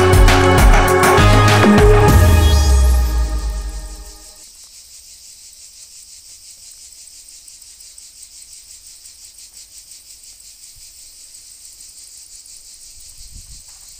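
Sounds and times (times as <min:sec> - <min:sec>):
insects chirring: 0:04.4 - 0:13.9.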